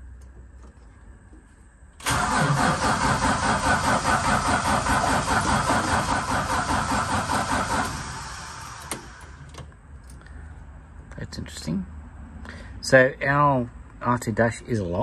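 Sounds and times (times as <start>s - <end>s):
car engine turning over: 2.0s - 9.7s.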